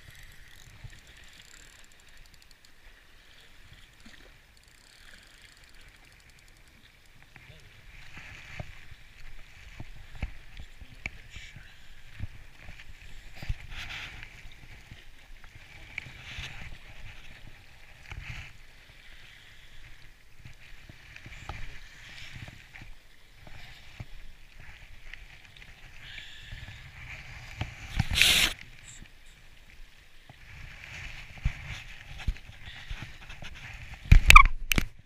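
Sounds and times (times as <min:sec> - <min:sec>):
loud rough scrape: 0:27.0 - 0:28.6.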